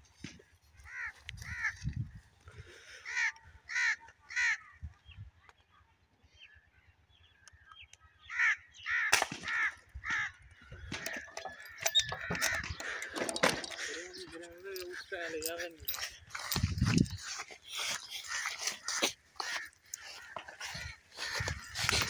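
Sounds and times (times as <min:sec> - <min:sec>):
crow cawing: 0:00.8 - 0:01.8, 0:02.7 - 0:04.8, 0:08.2 - 0:14.3, 0:17.2 - 0:22.0
sharp crack: 0:09.1 - 0:09.6.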